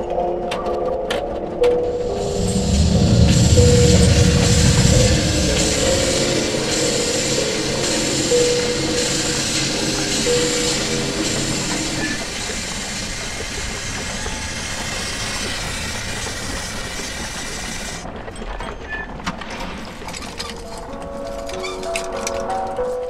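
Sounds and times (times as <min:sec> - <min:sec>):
held musical notes: 0:01.4 - 0:12.2
loud dense hissing rush: 0:02.0 - 0:17.5.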